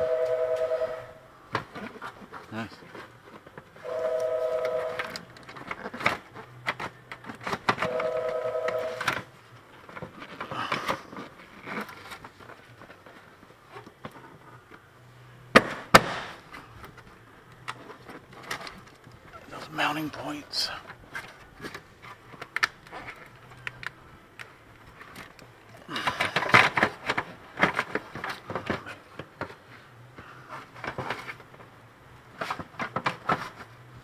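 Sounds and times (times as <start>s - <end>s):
two-note tone: 0.0s - 1.2s, 3.9s - 5.2s, 7.8s - 9.1s
sharp loud plastic clacks: 15.6s - 16.4s.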